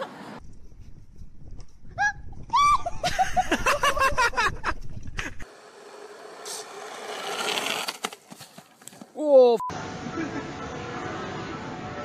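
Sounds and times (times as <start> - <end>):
skateboard wheels rolling on asphalt: 3.6 - 9.2.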